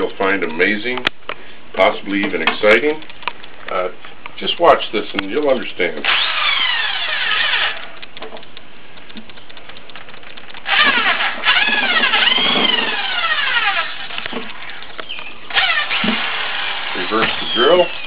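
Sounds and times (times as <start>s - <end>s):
power drill motor whine: 6.0s - 8.0s, 10.6s - 18.0s.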